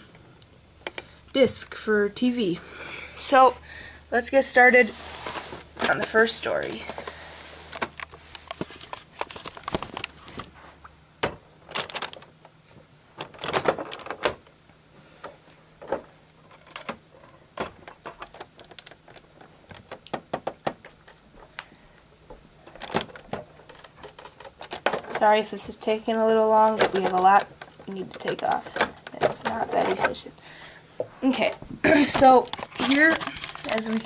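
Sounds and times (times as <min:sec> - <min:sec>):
plastic bricks clicking and clattering: 0:26.6 - 0:30.2, 0:32.1 - 0:34.0.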